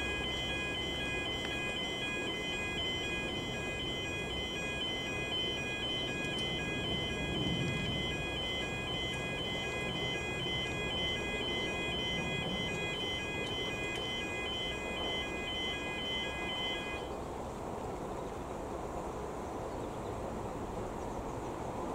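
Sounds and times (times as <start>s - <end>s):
level crossing alarm: 0.0s - 17.1s.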